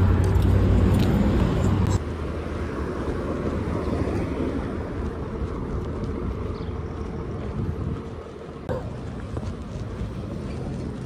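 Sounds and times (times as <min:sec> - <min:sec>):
street traffic rumble: 0:00.0 - 0:11.0
wind on microphone: 0:03.6 - 0:11.0.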